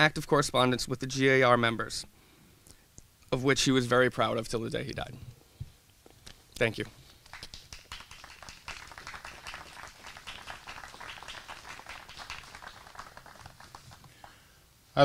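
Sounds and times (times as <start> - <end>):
audience applauding faintly: 7.2 - 14.5.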